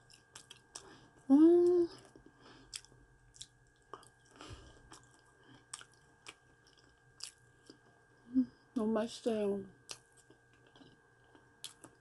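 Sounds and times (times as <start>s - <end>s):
person chewing: 0.0s - 1.0s, 2.0s - 7.9s, 9.9s - 12.0s.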